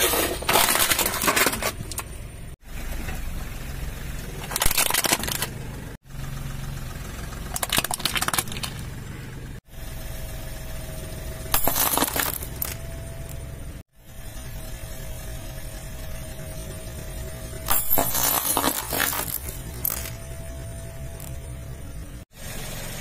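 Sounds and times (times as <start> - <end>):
car rumbling: 0.0 - 23.0.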